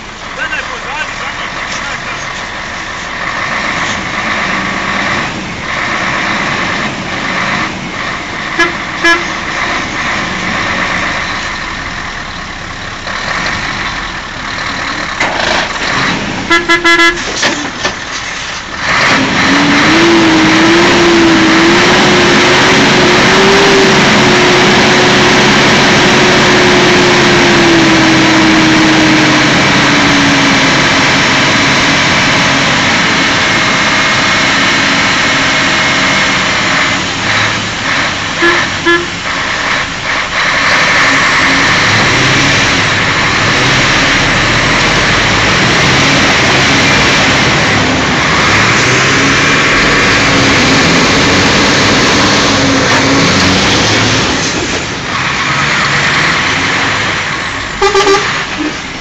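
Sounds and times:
truck diesel engine revving: 0:00.0 - 0:59.0
truck horn toots: 0:08.5 - 0:09.5, 0:16.4 - 0:17.4, 0:38.3 - 0:39.3, 0:57.8 - 0:58.8.

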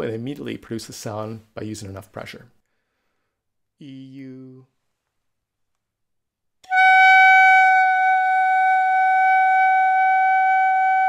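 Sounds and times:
clarinet mouthpiece high tone: 0:06.6 - 0:11.0.

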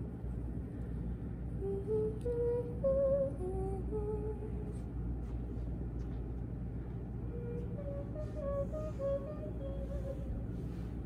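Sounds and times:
steady low background hum: 0:00.0 - 0:11.0
person humming a slow tune: 0:01.6 - 0:04.9, 0:07.1 - 0:11.0.

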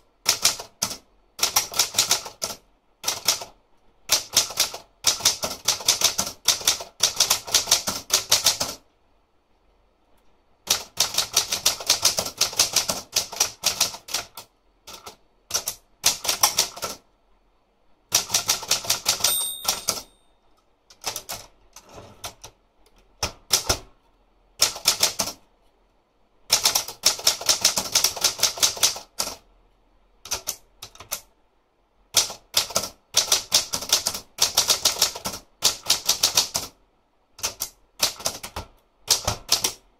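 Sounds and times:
typewriter key strikes: 0:18.8 - 0:20.1
typewriter bell ring: 0:19.1 - 0:20.4.

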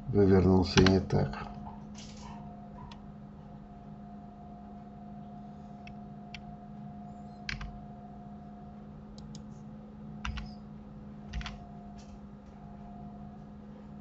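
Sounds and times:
low electrical hum: 0:00.0 - 0:14.0
keyboard and mouse clicks: 0:00.8 - 0:01.0, 0:07.5 - 0:07.7, 0:10.2 - 0:10.6, 0:11.3 - 0:12.1.

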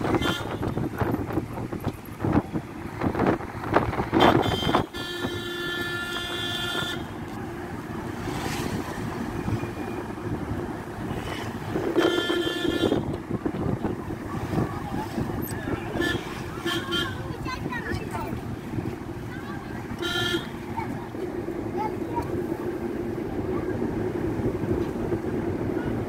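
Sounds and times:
vehicle horn blaring: 0:00.0 - 0:01.0, 0:04.1 - 0:07.2, 0:11.8 - 0:13.2, 0:15.9 - 0:17.4, 0:20.0 - 0:20.6
road noise inside car: 0:00.0 - 0:26.0.

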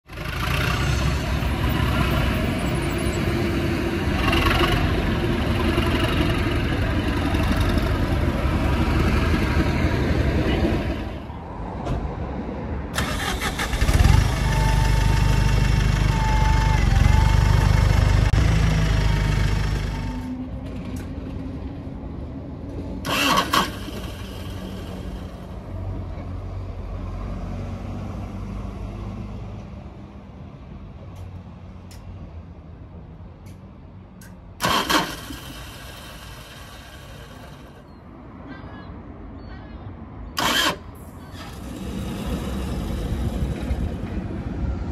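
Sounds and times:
bus diesel engine idling: 0:00.1 - 0:11.3, 0:13.0 - 0:21.3, 0:23.0 - 0:25.9, 0:34.6 - 0:37.9
bus diesel engine starting: 0:00.1 - 0:11.3, 0:12.9 - 0:21.1, 0:23.0 - 0:25.7, 0:34.6 - 0:38.0, 0:40.4 - 0:44.2
diesel locomotive engine running: 0:00.1 - 0:11.4, 0:13.0 - 0:26.0, 0:40.4 - 0:44.9
engine whine: 0:12.8 - 0:25.9.

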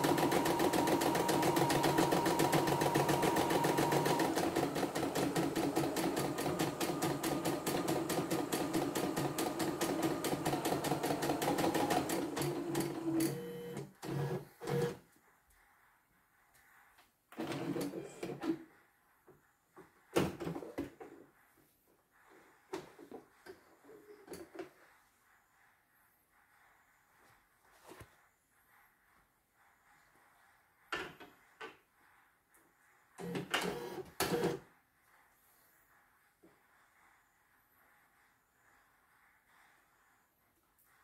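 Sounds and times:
embroidery machine stitching: 0:00.0 - 0:15.0, 0:17.4 - 0:18.6, 0:33.2 - 0:34.6.

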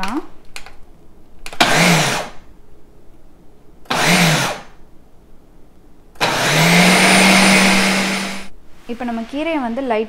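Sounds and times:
blender motor whirring: 0:01.6 - 0:02.4, 0:03.9 - 0:04.7, 0:06.2 - 0:08.5.

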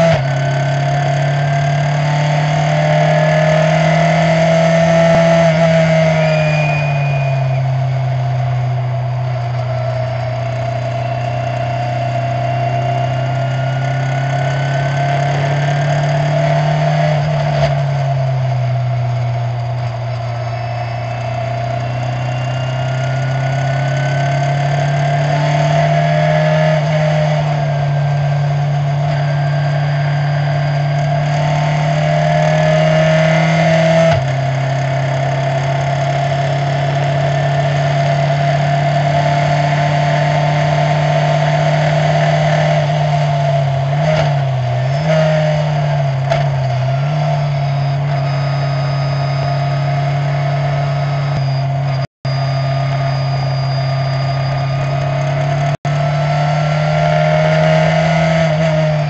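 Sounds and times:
racing car engine at speed: 0:00.0 - 0:59.0.

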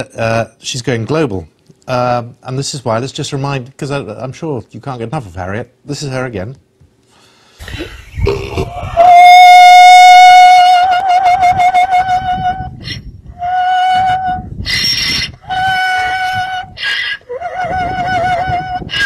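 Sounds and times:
donkey calling in held notes: 0:08.6 - 0:19.0
donkey rasping breaths: 0:16.8 - 0:17.3.

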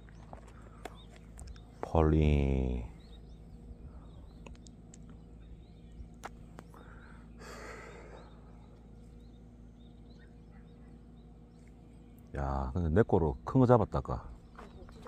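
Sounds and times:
low steady hum: 0:00.0 - 0:15.0
breathy sigh: 0:06.8 - 0:08.5.

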